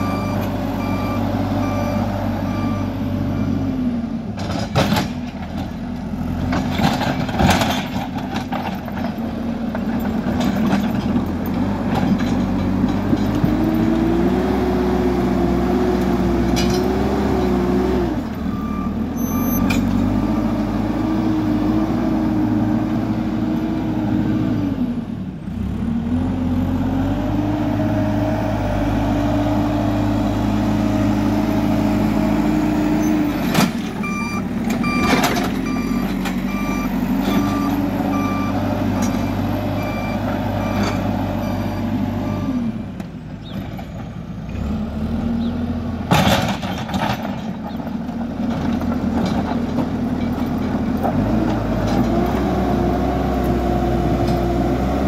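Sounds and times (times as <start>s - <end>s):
reversing alarm beeping: 0.0s - 3.7s, 18.5s - 20.6s, 34.0s - 42.7s
diesel engine revving: 0.0s - 55.0s.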